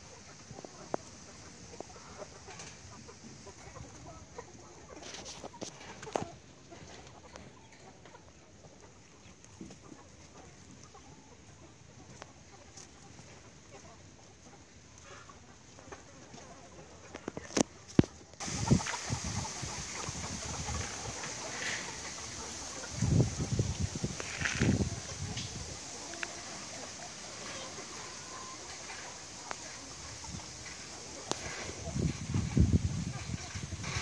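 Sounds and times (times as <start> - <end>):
chickens clucking: 0.0 - 34.0
faint outdoor background: 0.0 - 34.0.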